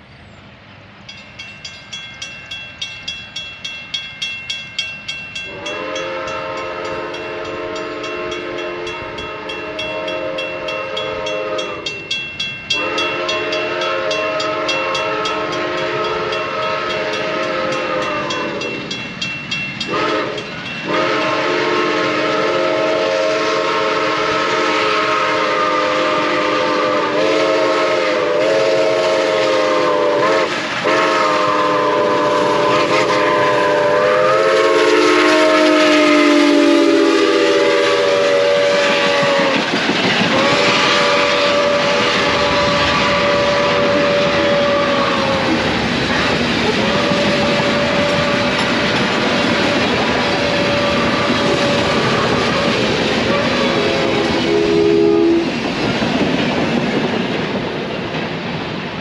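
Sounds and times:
locomotive exhaust beats: 1.1 - 58.4
steam locomotive whistle blasts: 5.4 - 19.0, 19.8 - 55.6.

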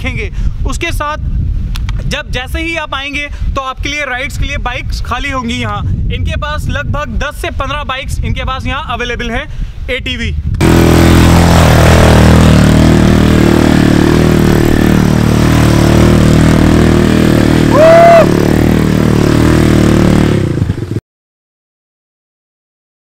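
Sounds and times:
quad bike engine running hard: 10.6 - 21.0
brief high rising tone: 17.7 - 18.4.

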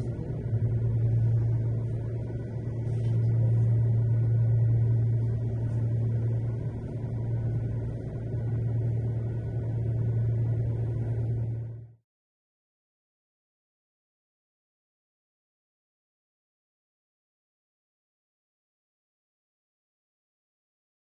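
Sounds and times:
even rumble: 0.0 - 12.0
people mover low hum: 0.0 - 12.0.

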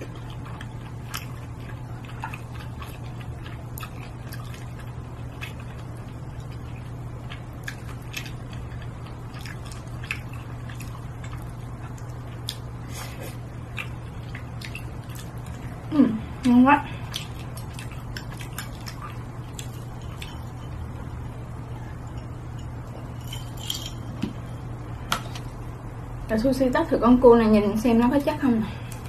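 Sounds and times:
chewing and mouth smacks: 0.0 - 20.8
steady low hum: 0.0 - 29.0.

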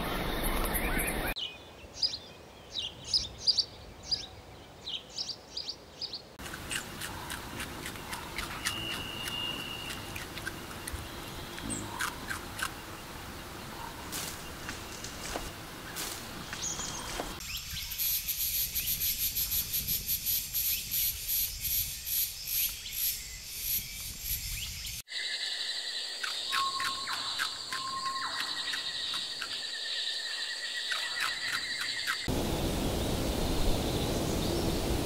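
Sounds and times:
insects chirping: 6.4 - 35.0
even hiss: 32.3 - 35.0.

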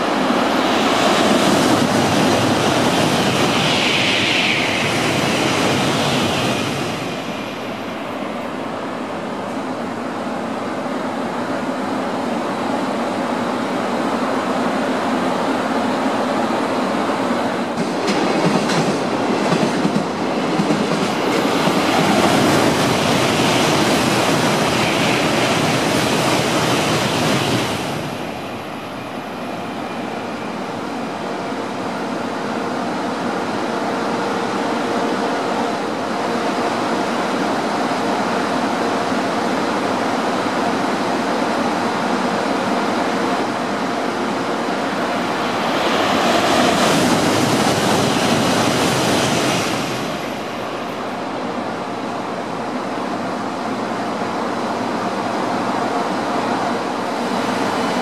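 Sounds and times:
high-speed train rushing past: 0.0 - 58.0.

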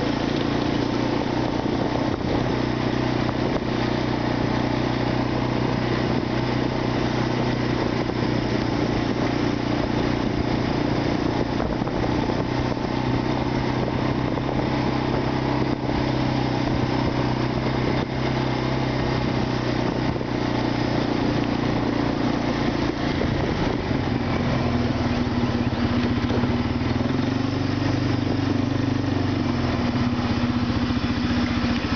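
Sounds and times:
atv engine running: 0.0 - 31.9.

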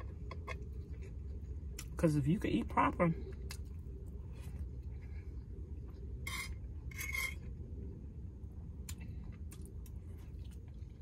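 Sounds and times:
steady low hum: 0.0 - 11.0
fork scraping a plate: 6.2 - 7.5.

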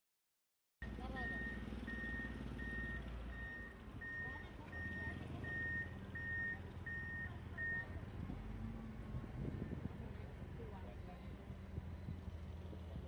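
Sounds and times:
reversing alarm beeping: 0.8 - 8.0.

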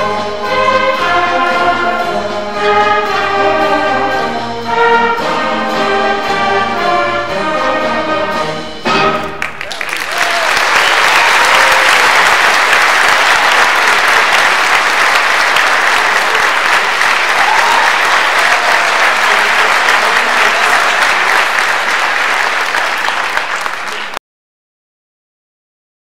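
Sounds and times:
audience applauding: 9.1 - 24.2.

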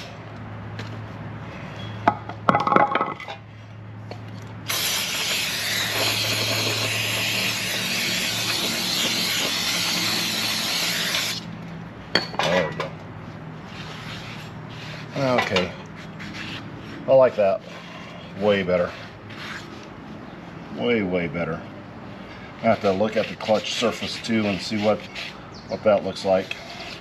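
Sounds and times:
spray hissing: 4.7 - 11.4.

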